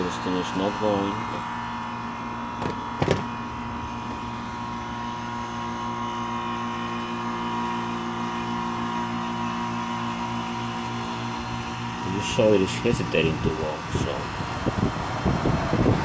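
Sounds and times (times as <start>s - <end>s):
air conditioner unit humming: 0.0s - 16.0s
short knock: 2.6s - 3.3s.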